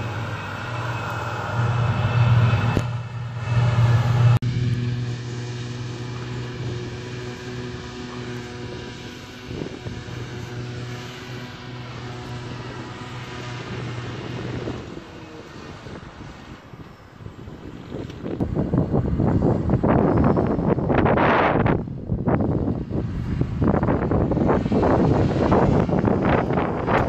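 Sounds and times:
heavy diesel drone: 0.0 - 27.0.

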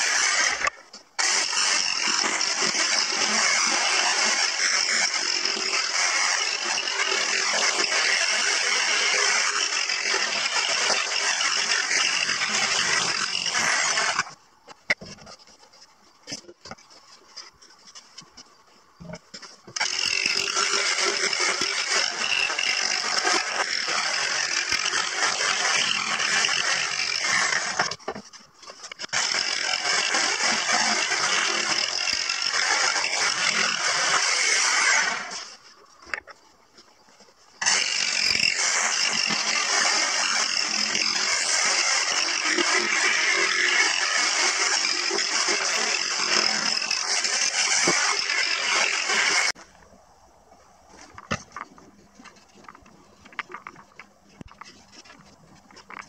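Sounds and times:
electric jigsaw sawing wood: 0.0 - 15.1, 19.7 - 35.6, 37.6 - 49.6.

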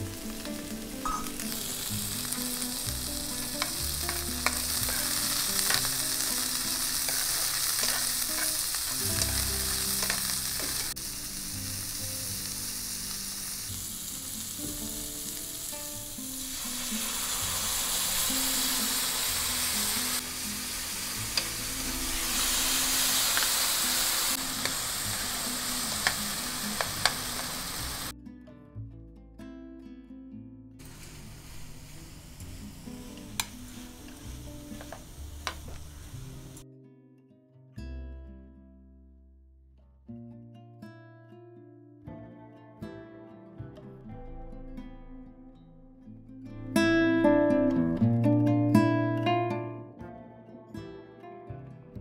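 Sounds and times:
vegetables sizzling in oil: 0.0 - 28.1, 30.8 - 36.6.

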